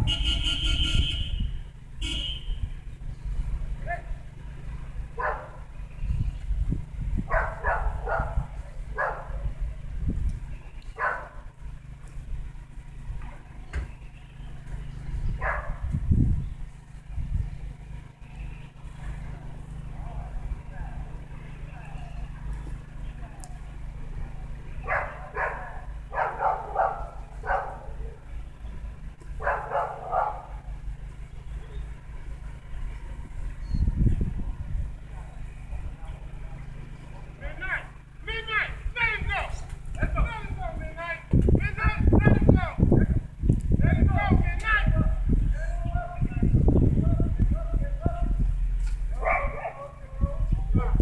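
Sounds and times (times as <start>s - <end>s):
low rumble: 4.7s - 37.1s, 38.7s - 51.0s
dog barking: 5.2s - 5.6s, 7.3s - 9.5s, 11.0s - 11.4s, 15.4s - 15.8s, 24.8s - 28.2s, 29.4s - 30.6s, 49.1s - 50.0s, 50.7s - 51.0s.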